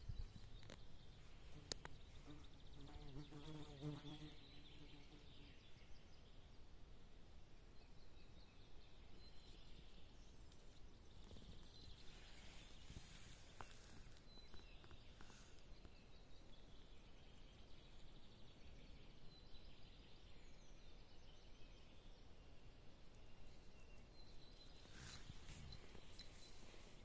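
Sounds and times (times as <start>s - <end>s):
faint high chirps: 23.1s - 27.0s.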